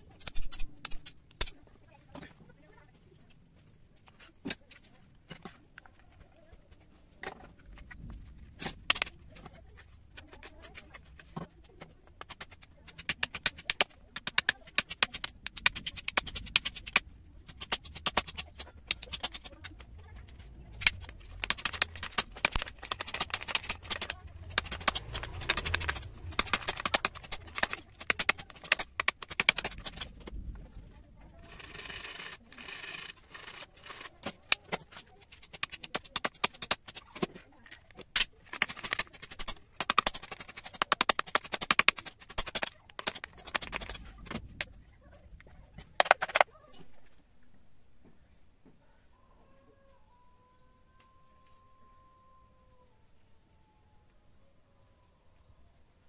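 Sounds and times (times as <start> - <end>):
knife cutting wood: 12.2 - 19.8, 20.7 - 30.1, 31.4 - 44.4.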